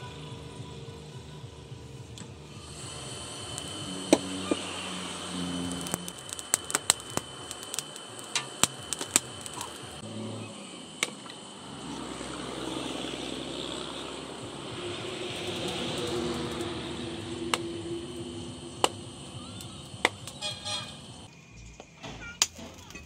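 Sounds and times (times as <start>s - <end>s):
high insect-like drone: 2.4s - 21.6s
fire crackling and popping: 2.6s - 10.0s, 12.1s - 21.3s.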